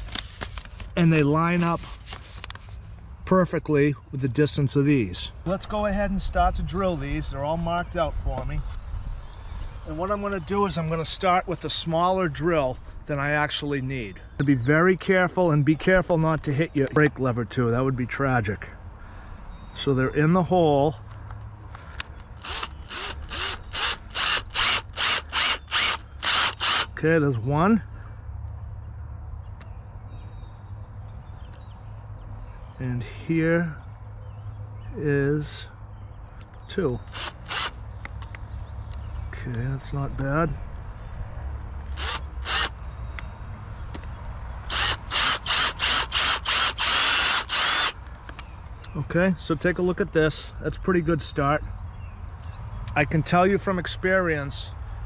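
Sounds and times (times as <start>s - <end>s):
cordless drill pulsing: 22.4s - 26.9s, 37.1s - 37.7s, 41.9s - 42.8s, 44.7s - 48.0s.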